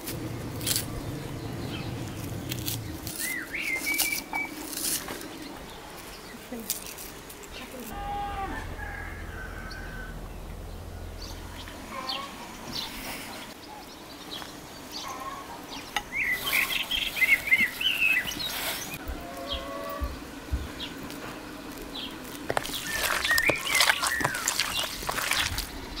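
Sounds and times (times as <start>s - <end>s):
songbirds chirping: 0.0s - 26.0s
hands kneading minced meat: 21.1s - 26.0s.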